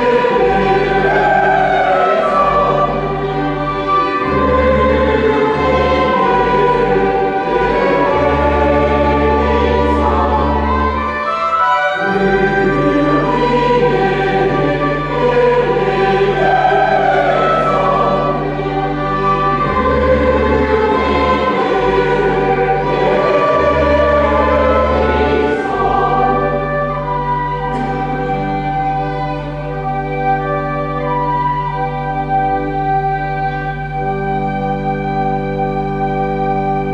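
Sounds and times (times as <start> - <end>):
church choir singing: 0.0 - 36.9
low organ notes: 0.0 - 36.9.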